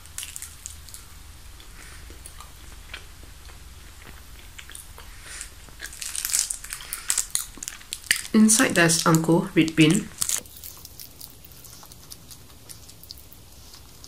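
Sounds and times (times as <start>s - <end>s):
sharp crackles: 0.0s - 13.2s
person chewing: 0.0s - 14.0s.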